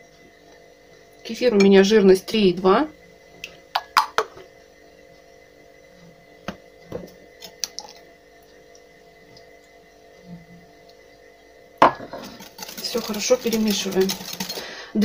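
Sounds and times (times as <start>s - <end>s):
whisk tapping ceramic bowl: 12.2s - 14.6s.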